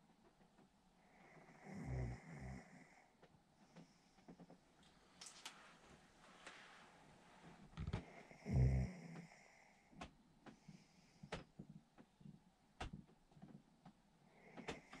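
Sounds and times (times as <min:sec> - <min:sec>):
man snoring: 0:01.4 - 0:02.9, 0:07.9 - 0:09.4.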